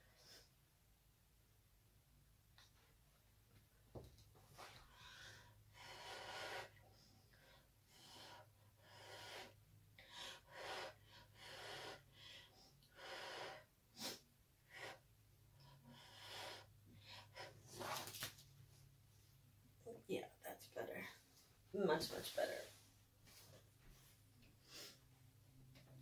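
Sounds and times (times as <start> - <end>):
faint puffs of breath: 24.6 - 25.1.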